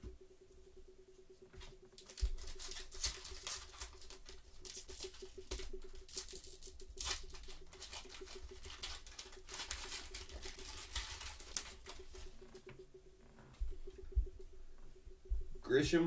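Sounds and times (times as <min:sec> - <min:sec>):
cards slapping and rustling: 0:01.6 - 0:12.4
wrapper crinkling: 0:02.0 - 0:12.8.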